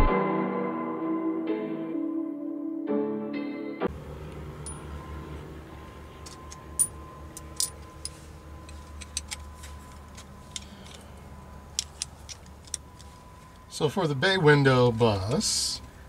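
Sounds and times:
low steady hum: 3.9s - 16.0s
small metallic clicks and clinks: 6.2s - 13.7s.

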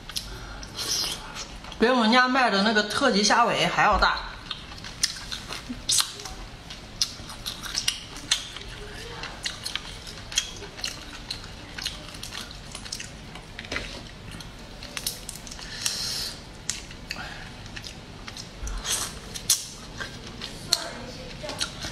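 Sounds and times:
chewing and lip sounds: 0.0s - 1.8s, 4.2s - 21.9s
crayfish shells cracking: 14.4s - 16.0s.

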